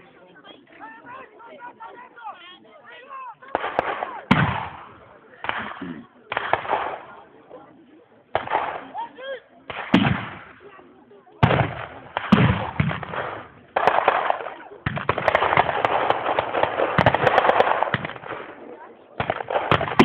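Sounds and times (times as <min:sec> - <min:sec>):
gunfire with echoing reports: 0:03.4 - 0:07.3, 0:08.3 - 0:09.0, 0:09.7 - 0:10.8, 0:11.4 - 0:20.0
rapid gunfire cracks: 0:03.5 - 0:07.2, 0:08.3 - 0:09.0, 0:09.7 - 0:10.6, 0:11.4 - 0:20.0.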